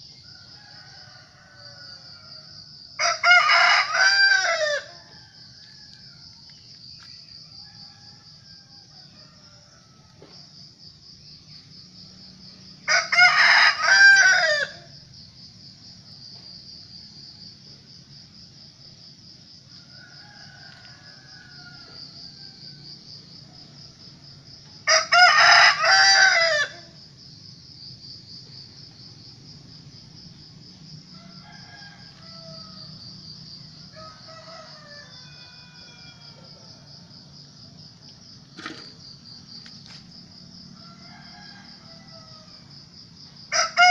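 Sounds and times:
high insect trill: 0.0s - 43.9s
rooster crowing: 0.2s - 6.6s, 7.4s - 10.6s, 12.8s - 15.0s, 19.5s - 27.0s, 28.9s - 38.7s, 40.5s - 43.9s.

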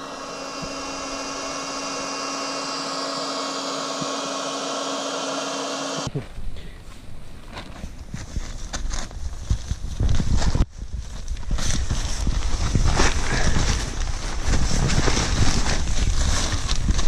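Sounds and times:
electric air pump running: 0.0s - 6.1s, 11.6s - 17.0s.

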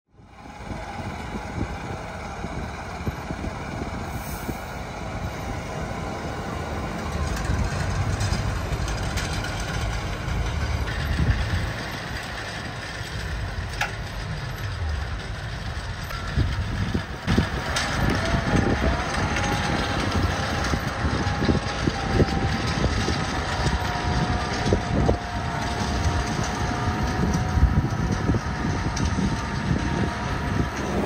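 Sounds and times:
tractor engine under load: 0.2s - 31.0s
tillage implement clicks: 6.5s - 31.0s.

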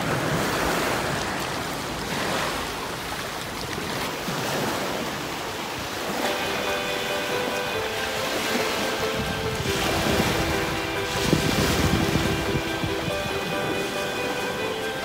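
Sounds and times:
waves washing onto pebbles: 0.0s - 15.0s
background music with held tones: 6.2s - 15.0s.

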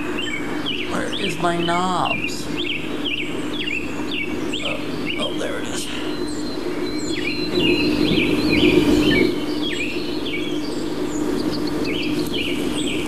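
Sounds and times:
birds chirping: 0.0s - 13.0s
camcorder tape deck hum: 6.2s - 13.0s.

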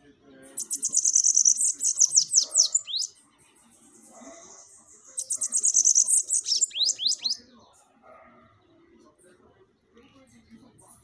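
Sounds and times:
bird singing buzzy trill: 0.0s - 7.5s.

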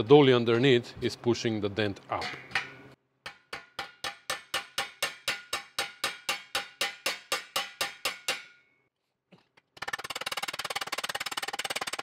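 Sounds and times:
hammer ringing on metal: 2.2s - 8.7s.

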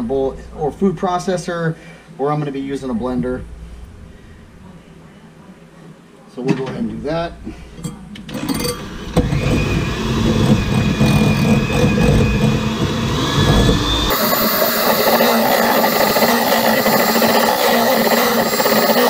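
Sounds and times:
electric hand mixer running: 8.3s - 19.0s.

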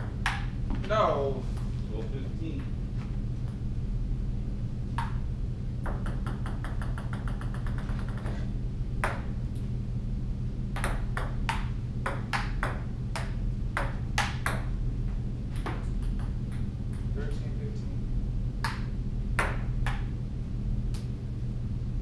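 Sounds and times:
steady low hum: 0.0s - 22.0s
table tennis ball bouncing: 5.0s - 5.2s, 5.8s - 8.4s, 9.0s - 9.4s, 10.7s - 14.7s, 15.6s - 17.1s, 18.6s - 20.1s.

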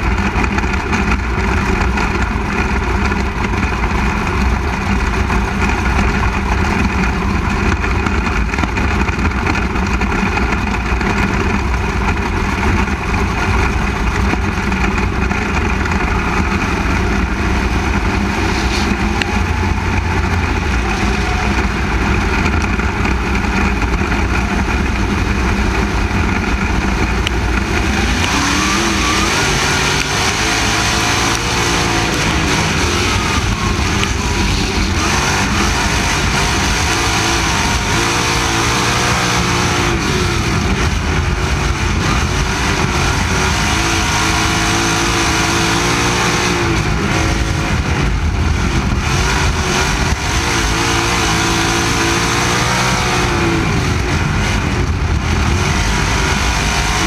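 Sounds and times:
other race car engines: 0.0s - 57.0s
race car engine running hard: 0.0s - 57.0s.

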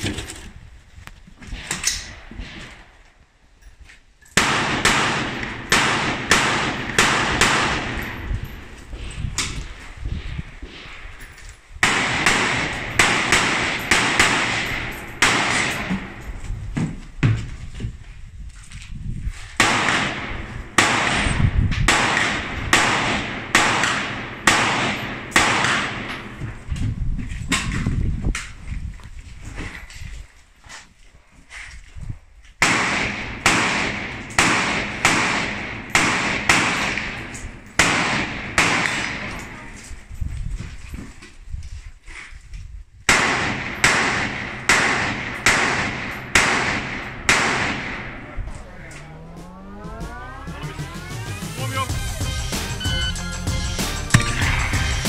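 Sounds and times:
rifle shots: 4.4s - 8.2s, 11.8s - 16.2s, 19.6s - 26.4s, 32.6s - 39.6s, 43.1s - 48.3s.

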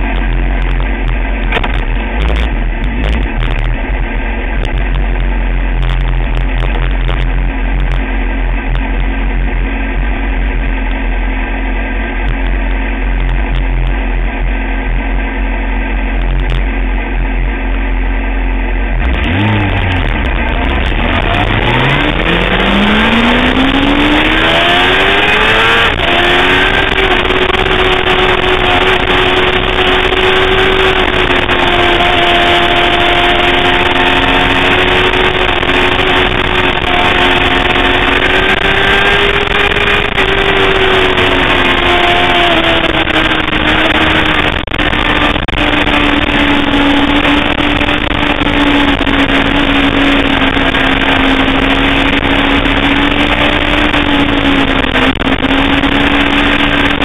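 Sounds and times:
motorcycle engine revving: 0.0s - 57.0s
wind rush on microphone: 19.2s - 57.0s.

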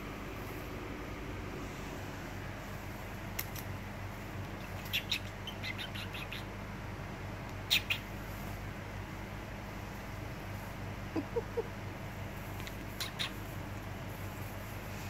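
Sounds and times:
steady low hum: 0.0s - 15.0s
kittens squeaking and chirping: 4.5s - 6.6s, 7.6s - 8.4s, 12.6s - 13.6s.

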